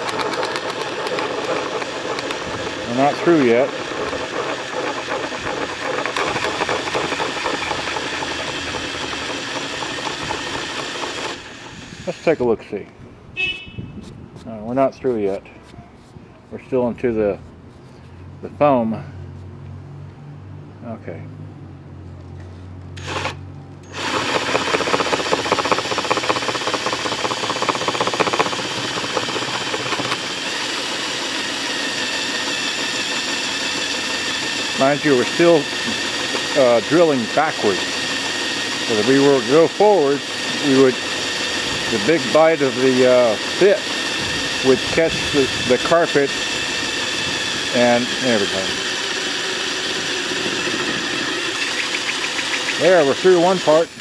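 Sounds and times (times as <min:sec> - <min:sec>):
hole saw scraping carpet: 0:00.0 - 0:12.5, 0:23.9 - 0:53.8
cordless drill motor whir: 0:00.0 - 0:12.6, 0:23.0 - 0:54.0.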